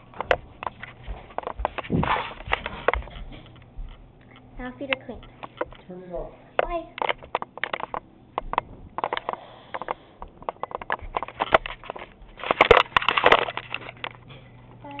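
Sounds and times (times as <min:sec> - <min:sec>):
rubbing and scraping: 0:00.5 - 0:03.2
camera handling clicks and knocks: 0:07.0 - 0:14.2.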